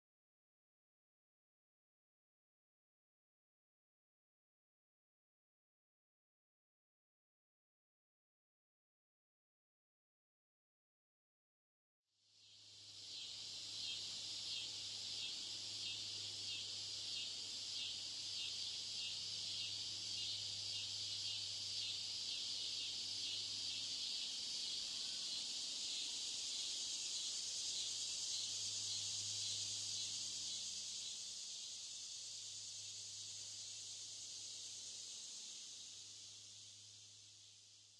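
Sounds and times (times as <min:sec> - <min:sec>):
pulsing insect chorus: 0:12.4 - 0:37.9.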